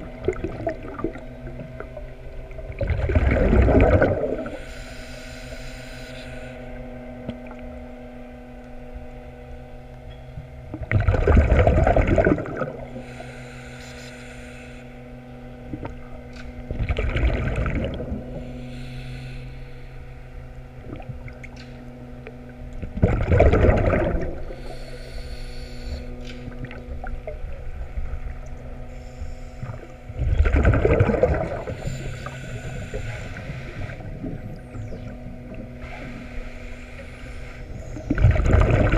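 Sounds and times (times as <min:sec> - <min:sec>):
exhaled bubbles underwater: 0:00.0 - 0:04.7, 0:10.4 - 0:13.2, 0:15.6 - 0:18.6, 0:20.6 - 0:24.9, 0:26.0 - 0:28.9, 0:29.6 - 0:38.9
steady low hum: 0:00.0 - 0:38.9.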